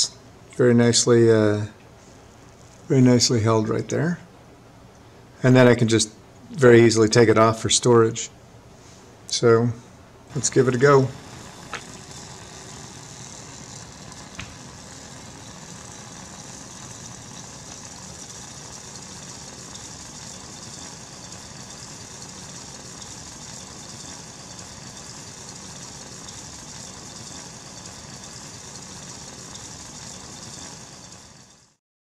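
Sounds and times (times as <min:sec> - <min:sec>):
burner flame hissing: 0:10.3 - 0:31.8
steam jets hissing: 0:10.3 - 0:31.8.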